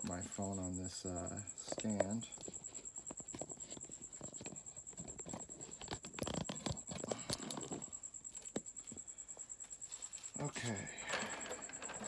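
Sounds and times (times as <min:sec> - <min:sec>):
handling clicks and rustles: 0:00.0 - 0:12.0
steady high-pitched whine: 0:00.0 - 0:12.0.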